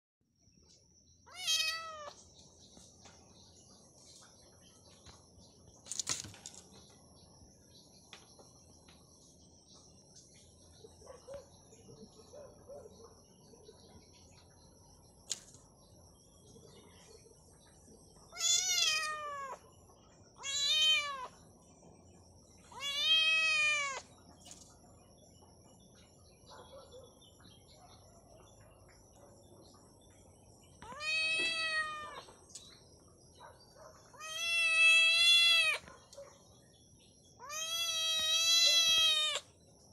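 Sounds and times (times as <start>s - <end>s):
kitten meowing: 1.3s - 2.1s, 18.4s - 19.6s, 20.4s - 21.3s, 22.7s - 24.0s, 30.8s - 32.2s, 34.2s - 35.8s, 37.4s - 39.4s.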